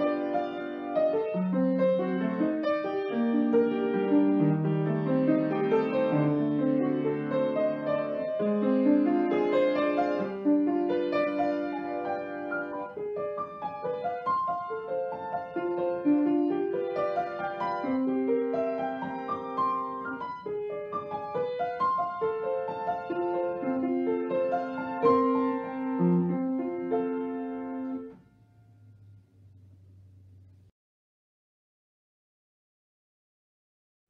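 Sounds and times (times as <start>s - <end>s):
solo piano melody: 0.0s - 30.6s.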